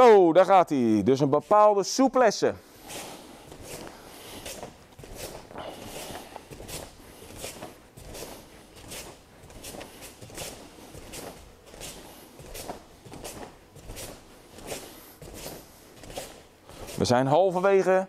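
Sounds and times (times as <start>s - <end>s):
bare foot swishing across a mat: 2.6s - 17.2s.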